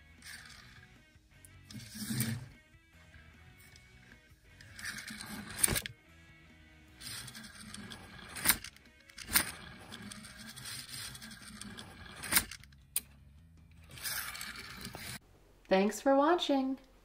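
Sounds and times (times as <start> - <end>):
toy car rolling and rattling: 0.1 - 0.9, 1.6 - 2.5, 4.6 - 5.9, 7.0 - 12.8, 13.7 - 15.2.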